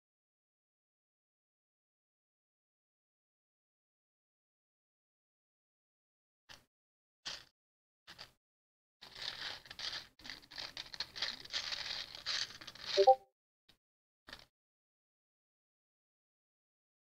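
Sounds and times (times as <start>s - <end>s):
plastic bricks rattling in a box: 7.3s - 7.5s, 8.1s - 8.3s, 9.0s - 13.2s, 14.3s - 14.5s.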